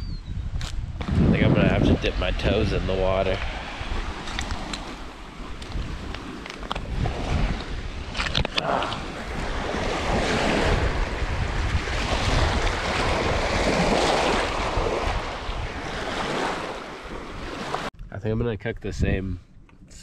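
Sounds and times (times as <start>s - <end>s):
wind buffeting microphone: 0.0s - 19.5s
waves lapping on stony shore: 3.1s - 17.9s
stones clicking underfoot: 5.6s - 6.9s, 7.6s - 9.1s.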